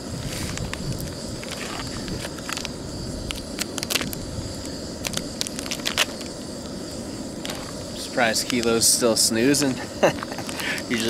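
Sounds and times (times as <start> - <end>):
steady low rumble: 0.0 - 11.0
plastic wrapper crinkling: 3.3 - 4.2, 5.0 - 6.3.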